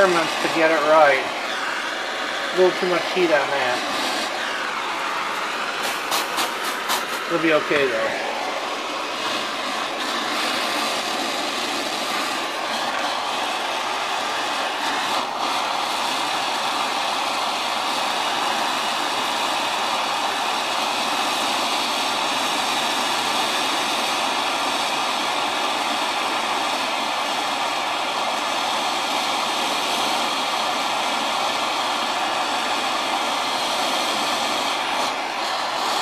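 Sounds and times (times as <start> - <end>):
torch flame hissing: 0.0 - 36.0.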